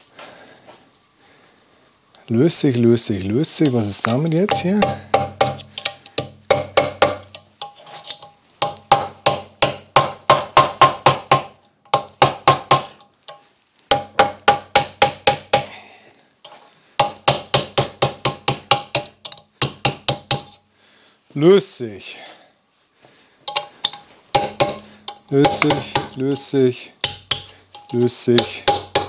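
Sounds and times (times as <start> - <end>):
hammer striking metal: 3.6 - 13.0, 13.9 - 15.7, 17.0 - 20.6, 23.5 - 26.4, 27.0 - 29.0.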